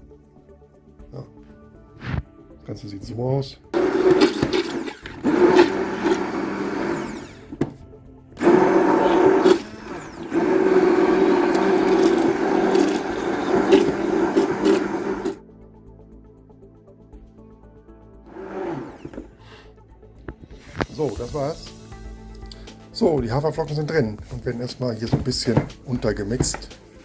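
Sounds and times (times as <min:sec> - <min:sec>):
immersion blender whirring: 0:03.8 - 0:07.8, 0:08.4 - 0:15.4, 0:18.3 - 0:19.4.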